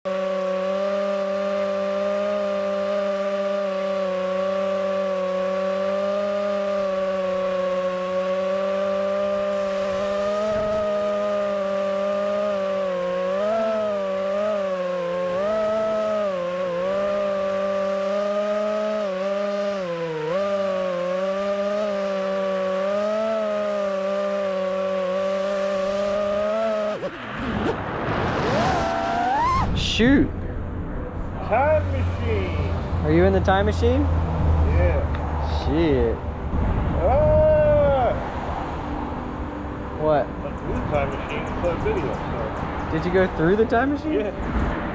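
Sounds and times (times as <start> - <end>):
drone motors whining: 0.3 - 30.1.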